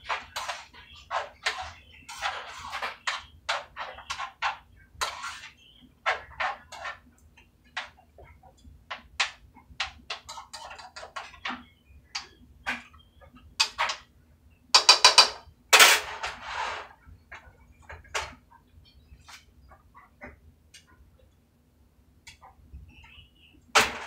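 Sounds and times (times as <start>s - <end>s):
utensil scraping a skillet: 0.0s - 7.1s, 9.8s - 11.7s.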